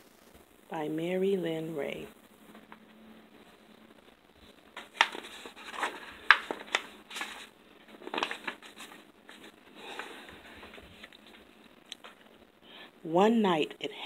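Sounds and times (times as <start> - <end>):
book pages turning: 4.8 - 12.4.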